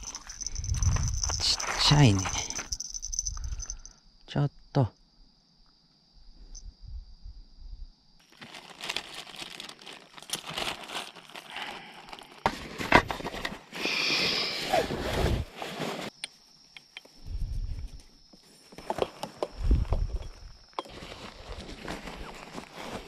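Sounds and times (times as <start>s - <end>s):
plastic bag crinkling: 0.0s - 3.7s, 8.2s - 12.9s.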